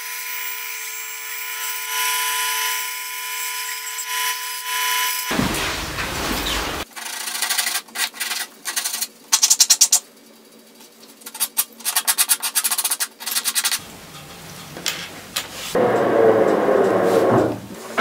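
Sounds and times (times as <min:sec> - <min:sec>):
bandsaw running: 0:13.8 - 0:18.0.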